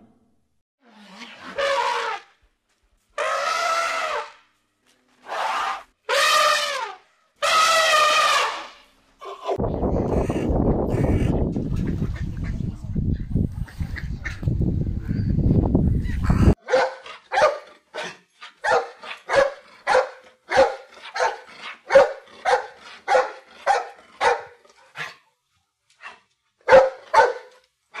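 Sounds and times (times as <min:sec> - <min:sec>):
dog barking: 0:16.6 - 0:25.2, 0:26.6 - 0:27.6.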